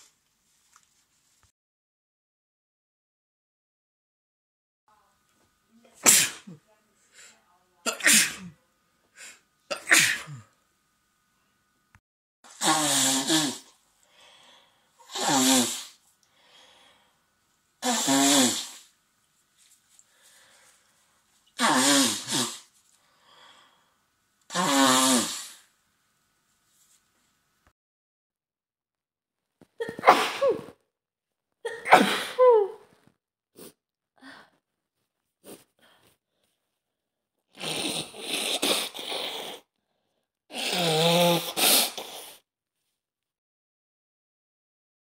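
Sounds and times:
person sneezing: 6.0 - 6.6, 7.9 - 8.6, 9.2 - 10.5, 12.5 - 13.7, 15.0 - 16.0, 17.8 - 18.8, 21.6 - 22.7, 29.8 - 30.8, 31.7 - 32.9, 37.6 - 39.7, 40.5 - 42.4
noisy breathing through nose: 12.5 - 17.2, 19.9 - 25.7, 37.6 - 42.4
faint breath: 14.0 - 15.0, 16.2 - 17.3, 20.0 - 21.1, 22.9 - 24.0.

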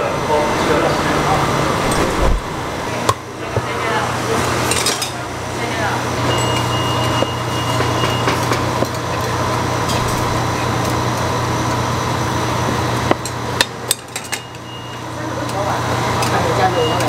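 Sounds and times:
steady low hum: 0.0 - 4.4.

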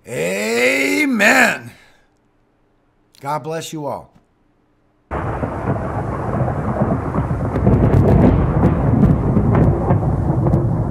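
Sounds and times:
rain: 5.1 - 10.9
sharp crackles: 5.1 - 10.9
thunder rumbling: 5.1 - 10.9.

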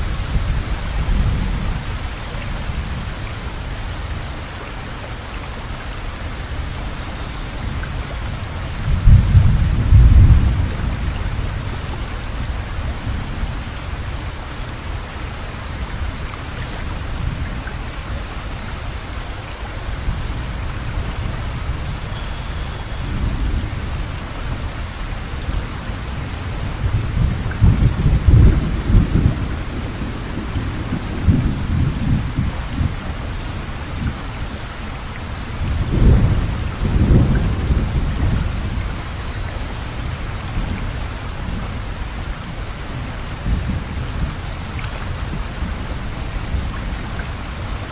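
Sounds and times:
steady rain falling: 0.0 - 47.9
thunder rumbling: 8.0 - 13.6, 20.0 - 34.5, 35.4 - 47.0.

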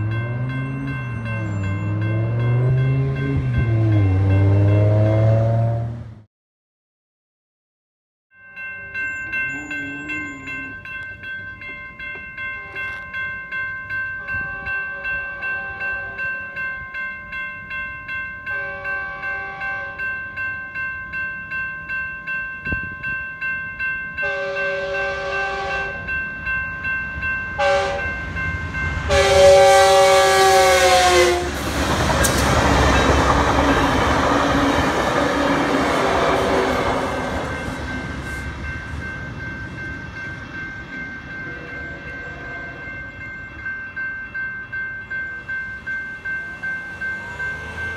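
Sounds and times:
crossing warning bells ringing: 0.0 - 6.0, 8.3 - 47.9
train rumbling and clattering past: 0.0 - 6.2, 8.6 - 47.9
train horn blasts: 14.2 - 16.6, 18.5 - 20.1, 24.2 - 26.2, 27.6 - 28.2, 29.1 - 31.7.

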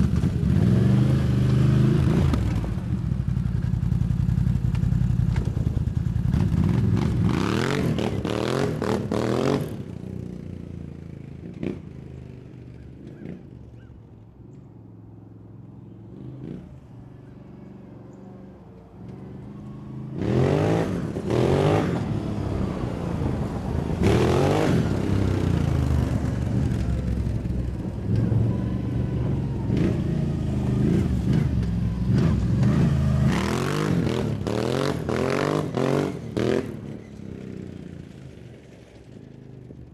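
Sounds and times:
atv engine revving: 0.0 - 13.8, 19.0 - 38.5.

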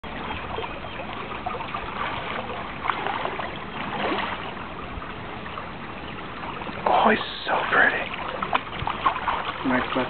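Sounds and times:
creek water running: 0.0 - 10.0
fish thrashing and splashing: 6.7 - 10.0.

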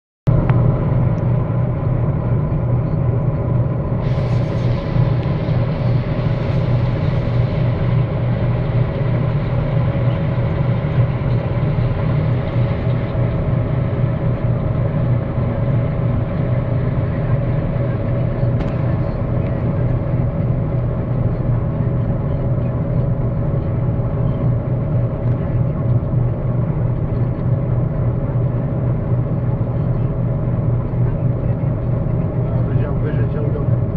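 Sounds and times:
combine harvester running: 0.3 - 33.9
hiss: 4.0 - 7.5.

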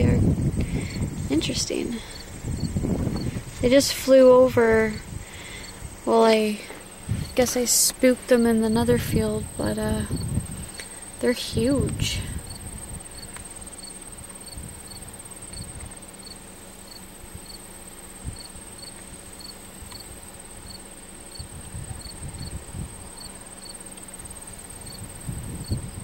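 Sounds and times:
high-pitched insect trill: 0.0 - 26.0
short cricket chirp: 2.1 - 3.4, 12.4 - 26.0.

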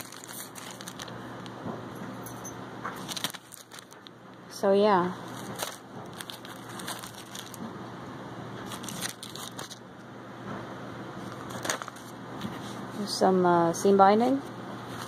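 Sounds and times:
plastic packaging crinkling: 0.0 - 1.6, 3.0 - 4.2, 5.2 - 7.7, 8.6 - 9.9, 11.2 - 12.2.

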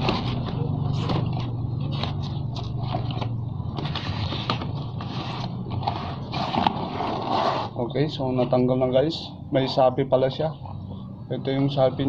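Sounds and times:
low machine hum: 0.0 - 12.0
inner tube rubbing against tyre: 3.9 - 7.8.

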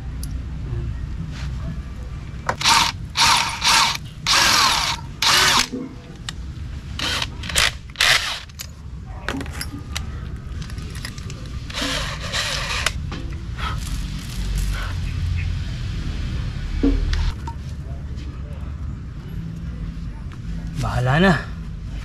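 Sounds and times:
electric hand drill boring: 2.5 - 5.7, 7.0 - 8.6, 11.7 - 13.0.

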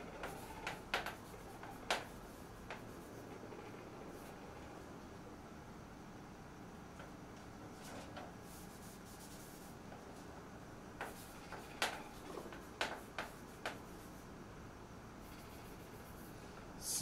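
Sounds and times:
chalk writing on blackboard: 0.0 - 4.4, 7.8 - 9.8, 11.0 - 14.3, 15.2 - 16.4
chalk taps and scratches: 0.1 - 3.5, 7.8 - 10.0, 11.0 - 14.3
chalk being wiped off blackboard: 7.8 - 9.8.

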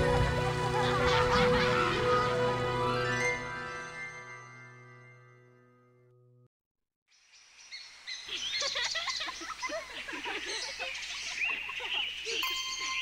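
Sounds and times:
small birds chirping: 7.1 - 13.0.

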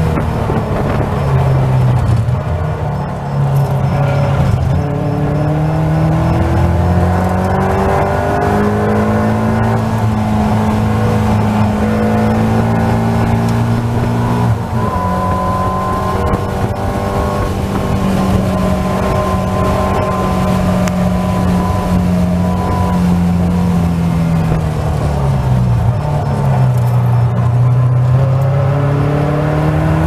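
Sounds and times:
race car engine accelerating: 0.0 - 30.0.

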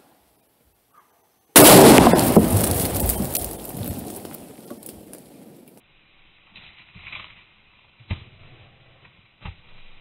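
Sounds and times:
firework boom: 1.6 - 4.3
dirt clods falling: 1.6 - 5.8.

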